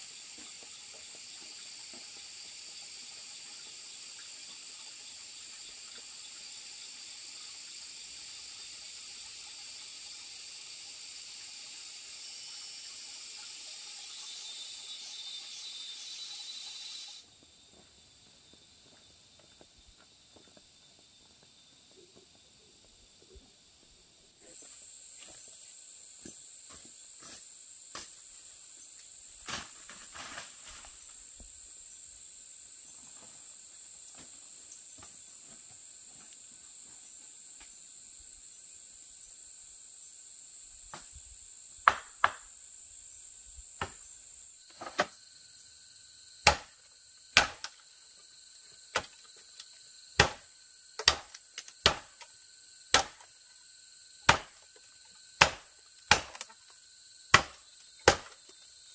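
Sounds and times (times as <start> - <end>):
insects trilling: 0.0 - 58.9
machete chopping bamboo: 41.8 - 42.5, 44.7 - 45.1, 46.4 - 47.8, 48.9 - 49.2, 50.2 - 52.3, 52.9 - 53.3, 54.2 - 54.7, 55.4 - 56.6, 57.3 - 58.5.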